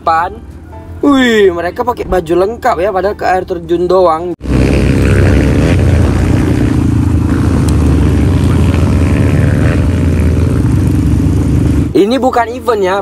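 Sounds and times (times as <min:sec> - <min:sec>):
motorcycle engine at speed: 0:04.4 - 0:12.2.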